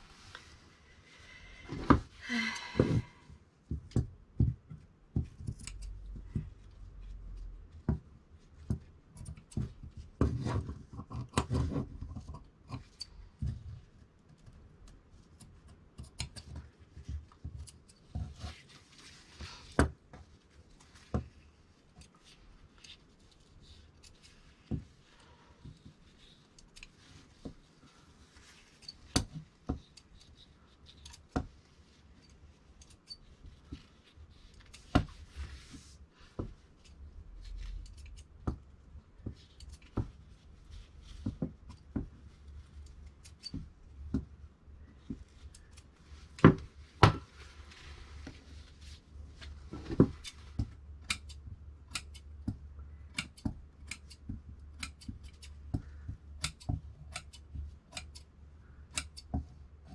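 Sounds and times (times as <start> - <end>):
fabric rustle: 18.1 - 36.8, 44.8 - 50.8
shears snipping fabric: 51.0 - 52.4, 53.1 - 58.3, 58.9 - 59.3.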